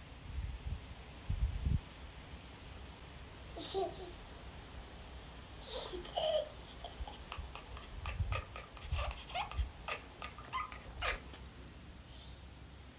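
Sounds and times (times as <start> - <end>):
toddler giggling and babbling: 3.5 - 4.2, 5.6 - 11.4
cat complaining cries: 5.9 - 11.4.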